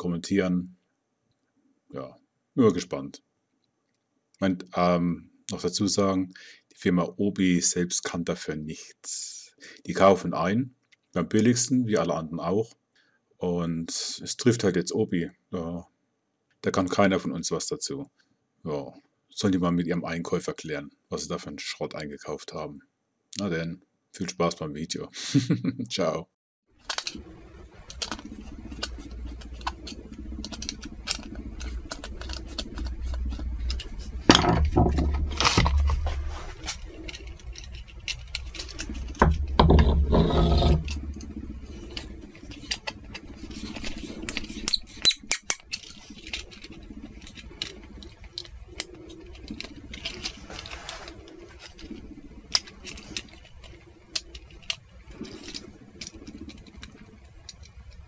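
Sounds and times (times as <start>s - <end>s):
low noise: 26.8s - 58.0s
screwdriver clicks and scrapes: 26.9s - 27.2s, 27.8s - 58.0s.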